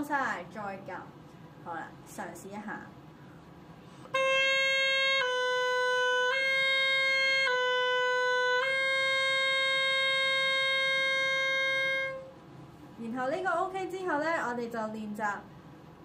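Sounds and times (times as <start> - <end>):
oboe playing two notes: 4.1 - 12.4.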